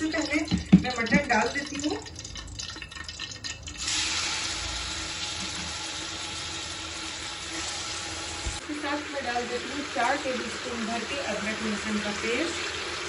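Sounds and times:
meat sizzling in hot oil: 0:03.8 - 0:13.0.

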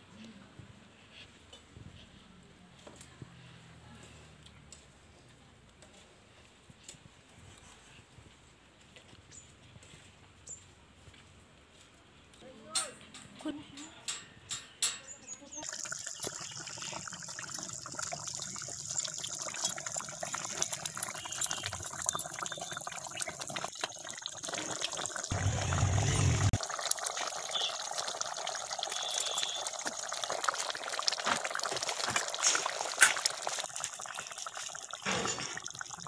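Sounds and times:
curry boiling with pops and crackles: 0:14.1 - 0:36.0
low rumble: 0:25.3 - 0:26.6.

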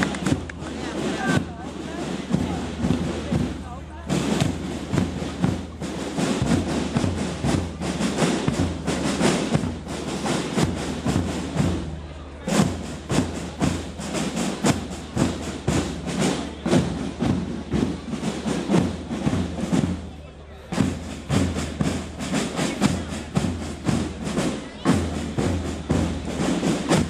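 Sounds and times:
rhythmic thuds and claps: 0:00.0 - 0:20.0
marching music: 0:00.0 - 0:27.0.

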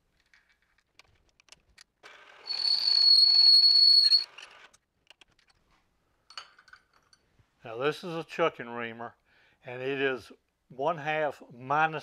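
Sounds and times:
small clicks: 0:00.2 - 0:02.1, 0:04.2 - 0:05.6
drill cutting metal: 0:02.1 - 0:04.6
high whistling squeal: 0:02.5 - 0:04.3.

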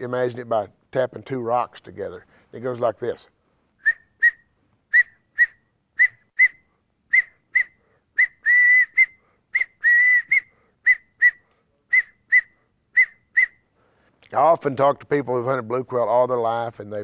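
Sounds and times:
man whistling bird call: 0:03.8 - 0:13.7.

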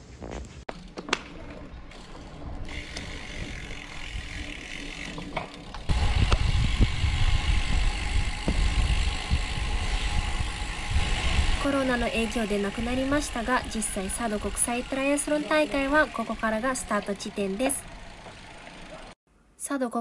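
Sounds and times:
road rumble: 0:00.7 - 0:19.2
wind buffeting microphone: 0:05.8 - 0:17.3.

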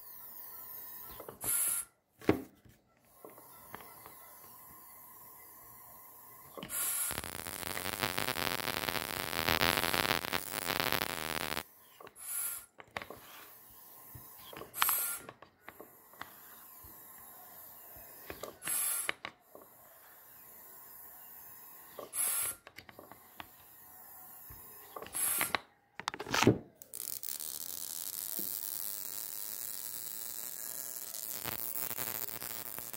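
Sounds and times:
steady hiss: 0:06.6 - 0:11.6, 0:26.9 - 0:32.9
high-voltage supply buzzing: 0:06.7 - 0:11.6, 0:26.9 - 0:32.9.

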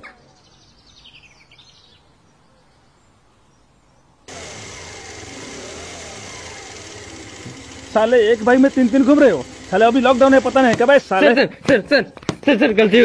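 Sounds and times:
motorcycle engine approaching: 0:04.3 - 0:10.9.

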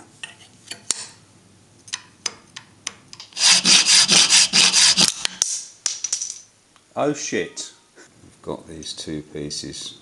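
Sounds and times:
file rasping on metal: 0:03.4 - 0:05.1.

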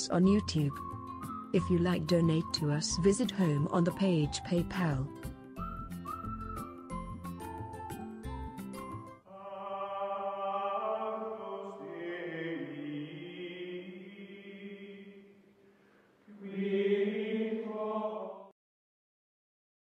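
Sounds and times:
chanted voices in held chords: 0:09.3 - 0:15.3, 0:16.3 - 0:18.5.

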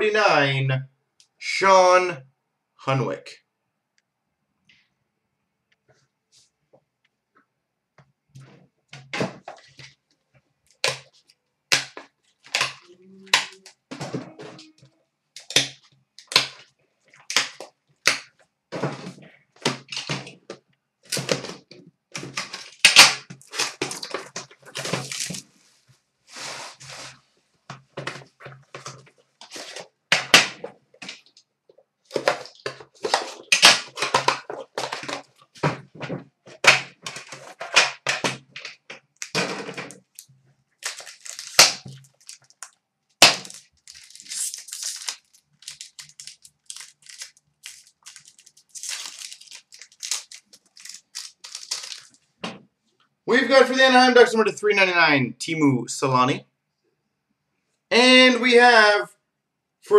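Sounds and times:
packaging crinkling and clicking: 0:22.2 - 0:25.5, 0:32.1 - 0:35.6, 0:36.5 - 0:52.2.

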